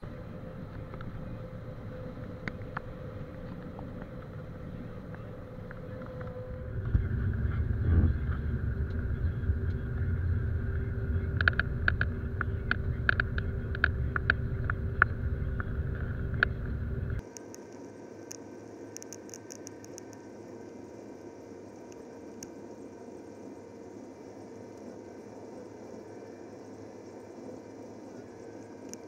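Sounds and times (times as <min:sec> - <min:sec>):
combine harvester hum: 0:00.0 - 0:17.2
sharp ticks: 0:10.7 - 0:17.6.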